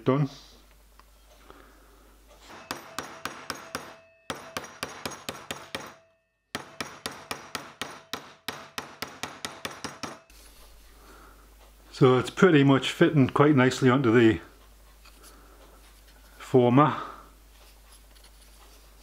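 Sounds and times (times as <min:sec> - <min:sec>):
mallet beating copper plate: 0:02.5 - 0:10.3.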